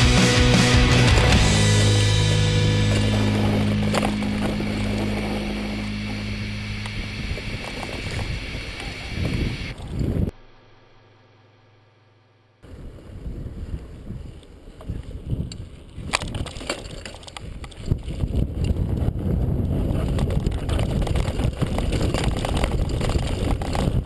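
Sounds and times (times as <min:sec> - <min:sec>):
bike rattling: 0:00.0 - 0:10.3, 0:12.8 - 0:24.0
wind rumbling on microphone: 0:01.3 - 0:10.3, 0:12.6 - 0:24.0
sharp clicks and knocks from bumps: 0:20.0 - 0:24.0.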